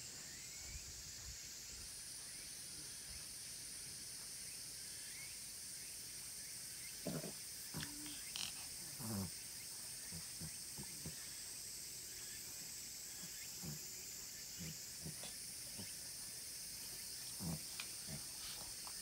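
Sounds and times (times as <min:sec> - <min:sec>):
high-pitched hiss: 0:00.0 - 0:19.0.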